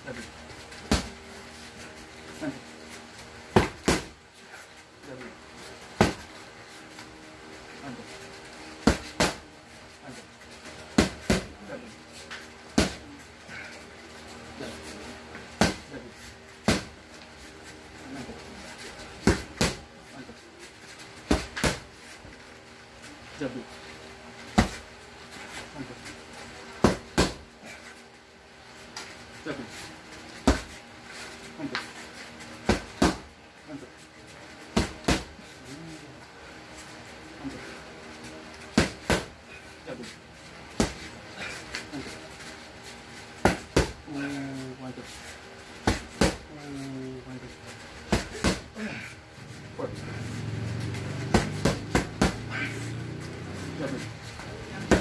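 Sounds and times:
boxing gloves slapping focus mitts: 0:00.7 - 0:01.2, 0:03.5 - 0:04.2, 0:06.0 - 0:06.4, 0:08.8 - 0:09.4, 0:10.6 - 0:11.6, 0:12.2 - 0:13.1, 0:15.5 - 0:16.0, 0:16.6 - 0:17.0, 0:19.1 - 0:19.9, 0:21.2 - 0:22.0, 0:24.5 - 0:24.9, 0:26.8 - 0:27.5, 0:30.4 - 0:30.8, 0:32.6 - 0:33.3, 0:34.7 - 0:35.4, 0:38.5 - 0:39.4, 0:40.7 - 0:42.2, 0:43.4 - 0:44.1, 0:45.8 - 0:46.5, 0:48.1 - 0:49.0, 0:50.9 - 0:55.0.

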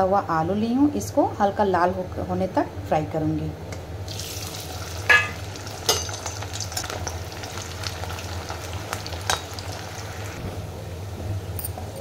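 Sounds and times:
potatoes sizzling in hot oil: 0:04.1 - 0:10.4
metal utensils clinking on pan: 0:05.1 - 0:07.0.

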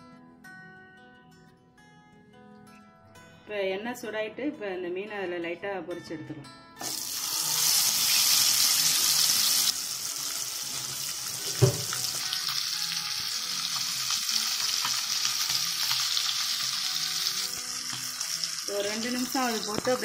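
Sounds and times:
fish sizzling in hot oil: 0:06.8 - 0:20.0
single knock: 0:11.6 - 0:12.0.

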